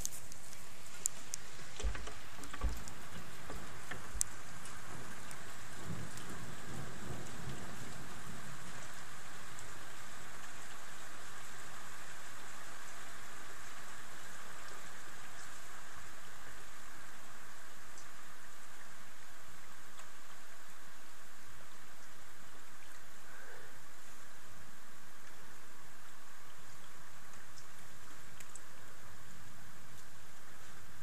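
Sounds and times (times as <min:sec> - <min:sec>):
steady rain falling: 0:00.0 - 0:31.0
thunder rumbling: 0:01.6 - 0:10.0.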